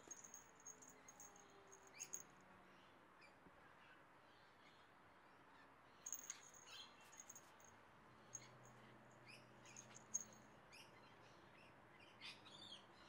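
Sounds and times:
small bell jingling: 0.0 - 2.2, 6.1 - 7.7, 9.7 - 10.4.

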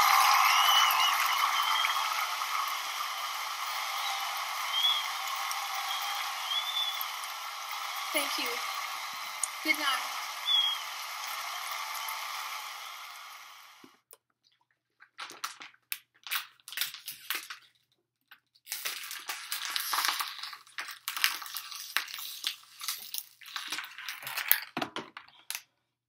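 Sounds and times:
plastic bottle crinkling: 14.3 - 25.6.

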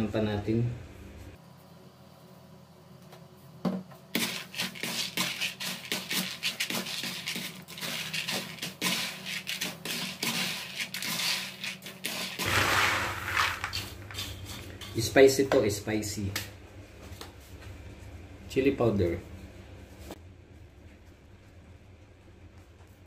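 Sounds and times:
peanuts rattling in plastic basin: 4.2 - 14.2.

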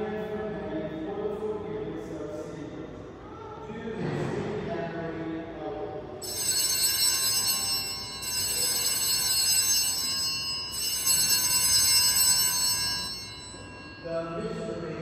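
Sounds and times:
small bells jangling: 6.2 - 15.0.

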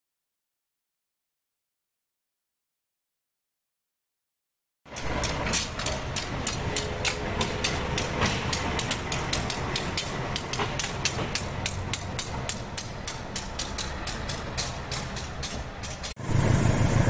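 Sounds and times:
rapid clatter on track: 4.9 - 16.2
locomotive engine rumble: 4.9 - 17.0.

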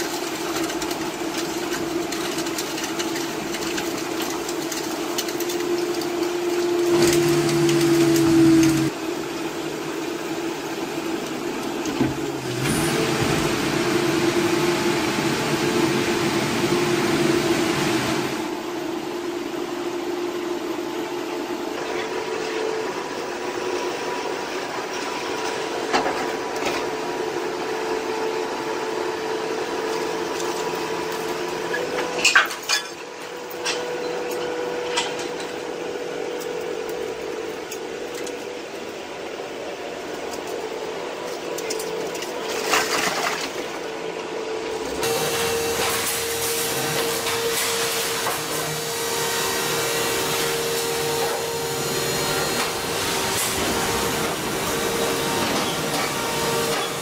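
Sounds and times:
hydraulic baler pump whine: 3.3 - 32.3, 43.8 - 57.0.

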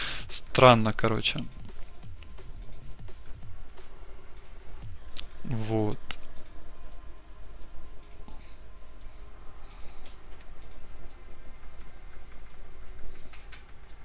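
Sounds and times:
steady low hum: 0.0 - 14.0
computer mouse clicks: 4.4 - 5.4, 6.0 - 6.6, 8.0 - 8.4, 9.6 - 11.2, 11.8 - 14.0.

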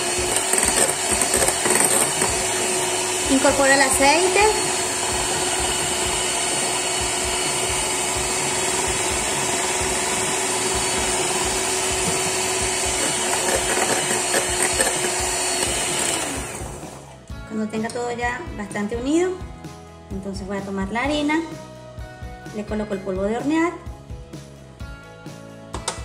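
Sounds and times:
electric hand mixer running: 0.0 - 17.2.

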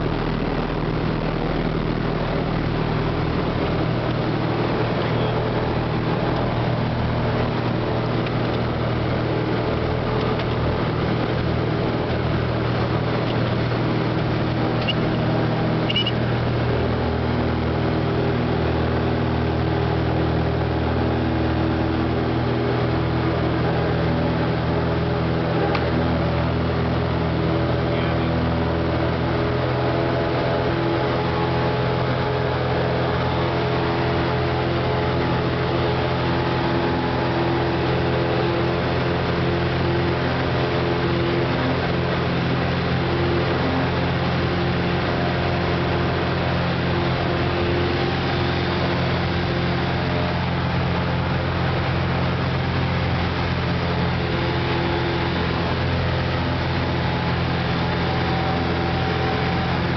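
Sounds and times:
airplane engine and propeller: 0.0 - 59.9.

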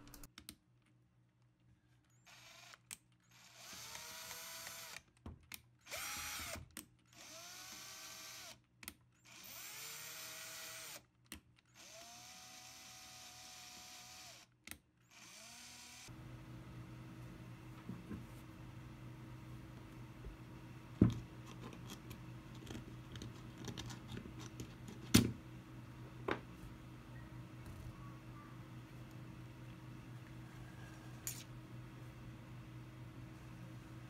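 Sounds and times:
cordless drill motor whine: 2.3 - 5.0, 5.9 - 8.6, 9.3 - 11.0, 11.8 - 14.5, 15.1 - 16.2.

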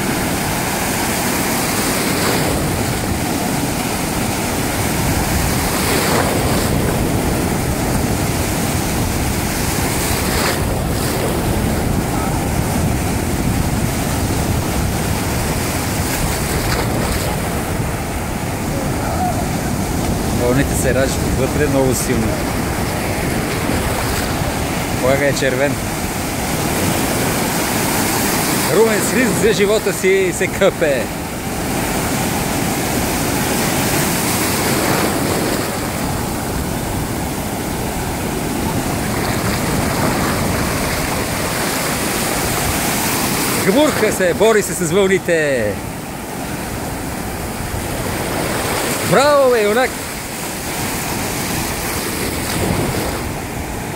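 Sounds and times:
wind buffeting microphone: 0.0 - 29.2, 31.1 - 43.7
sea surf breaking: 0.0 - 53.9.

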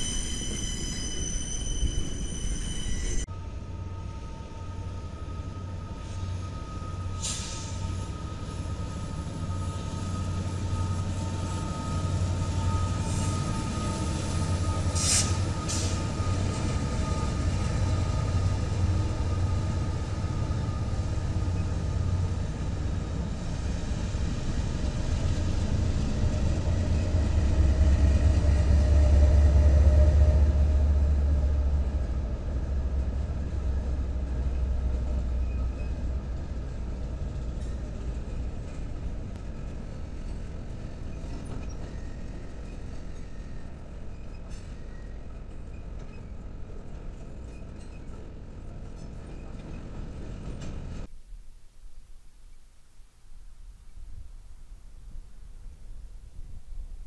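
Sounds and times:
diesel locomotive engine rumble: 0.0 - 51.2
faint steady whine: 51.1 - 57.0.

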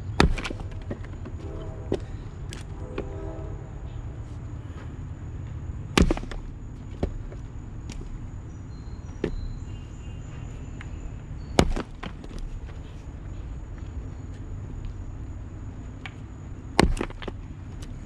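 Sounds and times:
axe chopping wood: 0.2 - 1.1, 5.9 - 8.1, 11.6 - 12.5, 16.8 - 17.4
wood knocking: 0.2 - 2.1, 11.6 - 12.5, 16.8 - 17.4.

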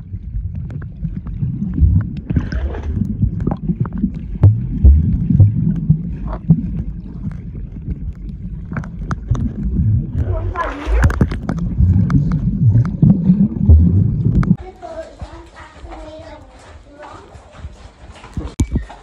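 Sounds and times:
underwater churning rumble: 0.0 - 14.6
dull thuds and clicks underwater: 0.0 - 19.0.

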